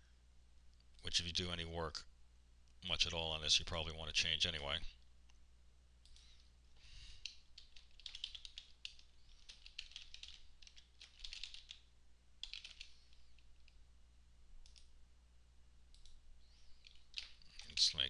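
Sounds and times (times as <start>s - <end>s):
typing on computer keyboard: 7.2s - 13.2s, 16.8s - 17.9s.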